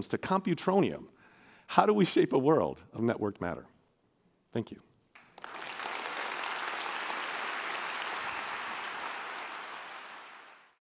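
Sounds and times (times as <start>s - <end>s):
audience applauding: 5.2s - 10.8s.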